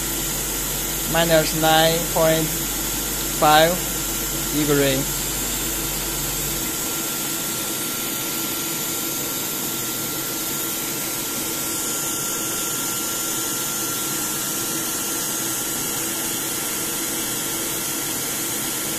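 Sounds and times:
air cooling machine blowing air: 0:00.0 - 0:18.9.

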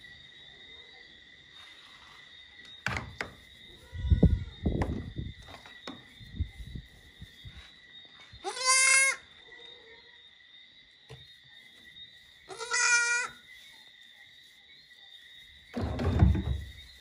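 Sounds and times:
goat kid bleating: 0:08.4 - 0:09.2, 0:12.5 - 0:13.4.

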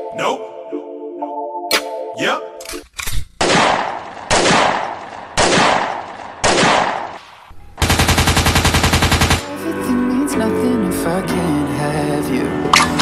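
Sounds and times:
gunshots: 0:03.4 - 0:09.4
machine-gun burst: 0:07.8 - 0:09.4
music with singing: 0:09.4 - 0:13.0.

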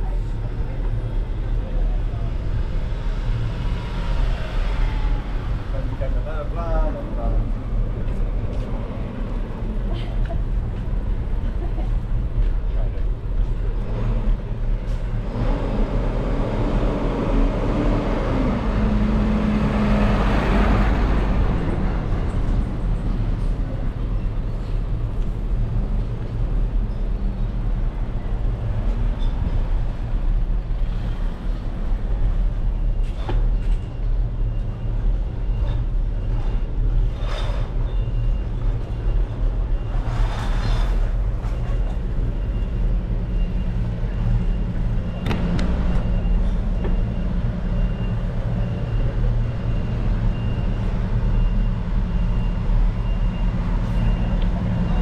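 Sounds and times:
diesel trucks idling: 0:40.9 - 0:55.0.

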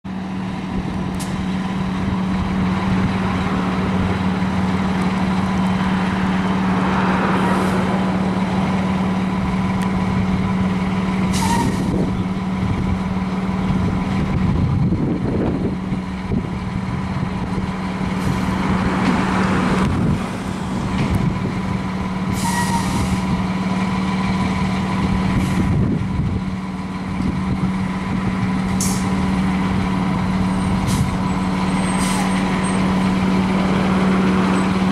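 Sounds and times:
diesel engine idling: 0:00.1 - 0:34.9
air brake hisses: 0:11.3 - 0:12.0, 0:22.3 - 0:23.3, 0:31.9 - 0:32.4.

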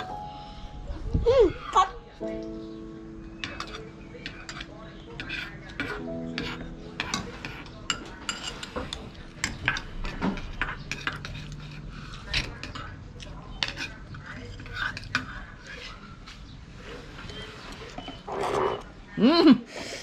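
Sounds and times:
spoons clinking against bowls: 0:03.4 - 0:15.8.

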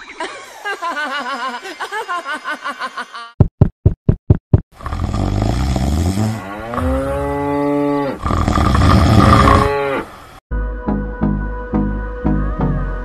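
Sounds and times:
cow mooing: 0:06.6 - 0:10.1.

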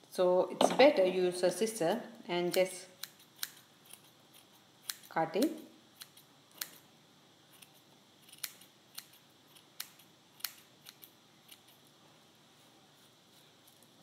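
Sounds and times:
scissors snipping yarn: 0:02.4 - 0:06.8, 0:07.6 - 0:11.8.

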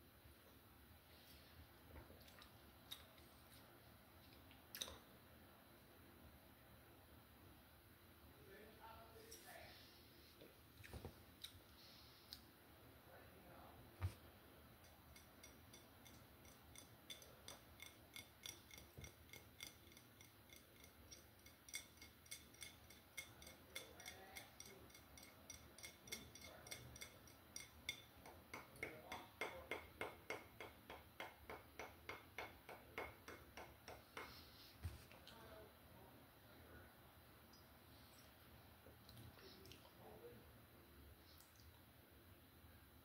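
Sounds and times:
fingernails tapping glass bottle: 0:14.8 - 0:34.4.

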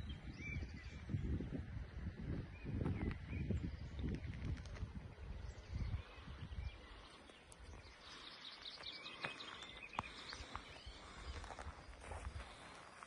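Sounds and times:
small birds chirping: 0:00.0 - 0:13.0
footsteps on dirt road: 0:07.1 - 0:13.0.

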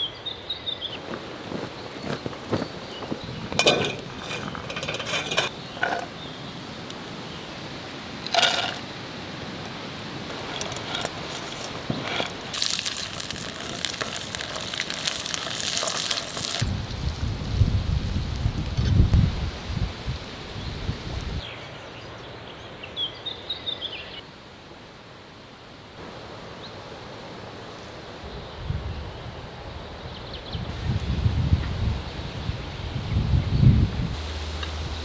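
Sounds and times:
cookware clinking and knocking: 0:03.5 - 0:06.1, 0:08.3 - 0:08.8
spatula stirring: 0:10.3 - 0:16.6
food sizzling in a pan: 0:12.5 - 0:16.6.

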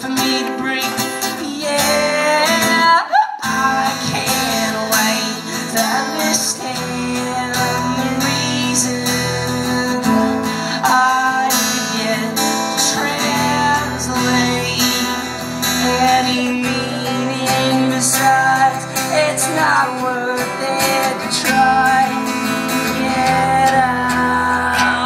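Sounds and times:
acoustic guitar strumming: 0:00.0 - 0:25.0.

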